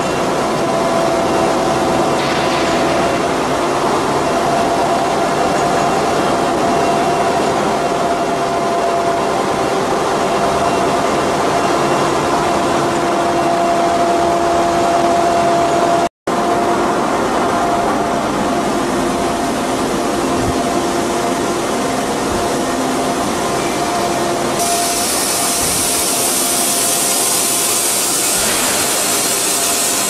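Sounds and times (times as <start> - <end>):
rolling mill machine noise: 0.0 - 30.0.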